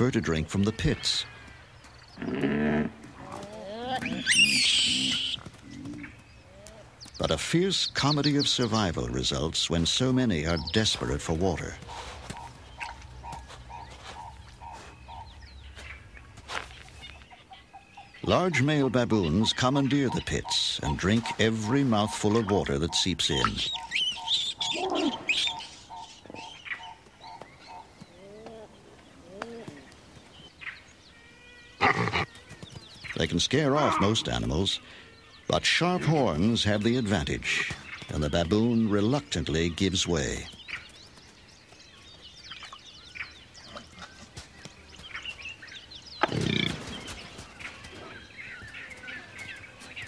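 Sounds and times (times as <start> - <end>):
birds chirping: 0.0 - 50.0
low rising-and-falling bird calls: 1.0 - 7.0
low animal call: 24.6 - 25.6.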